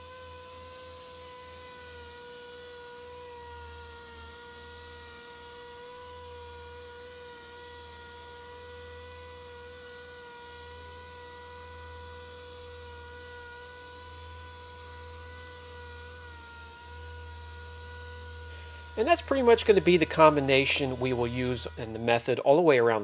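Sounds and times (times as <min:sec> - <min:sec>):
air polisher whirring: 0:00.0 - 0:23.0.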